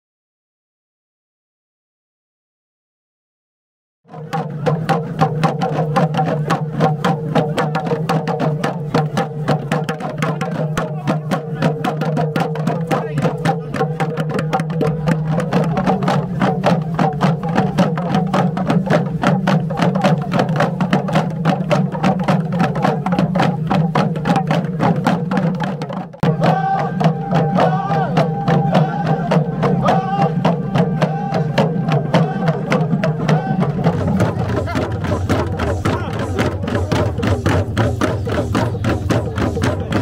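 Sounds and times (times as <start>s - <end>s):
hand drums beating: 4.1s - 40.0s
men chanting: 4.2s - 18.8s, 26.2s - 40.0s
person singing: 26.2s - 37.5s.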